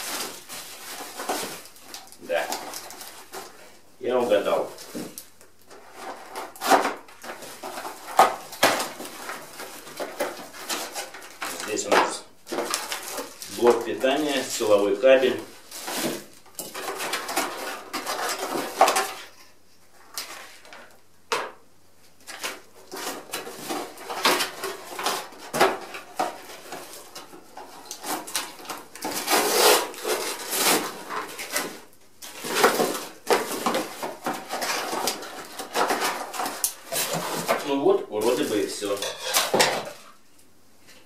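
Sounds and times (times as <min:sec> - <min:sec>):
cardboard and plastic wrap rustling: 0:00.0 - 0:21.4, 0:22.0 - 0:41.0.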